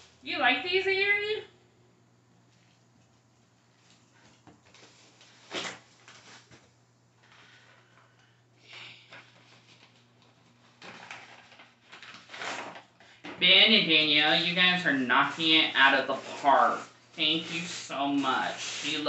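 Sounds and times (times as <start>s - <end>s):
gift bag rustling: 9.2s - 13.0s, 15.2s - 19.0s.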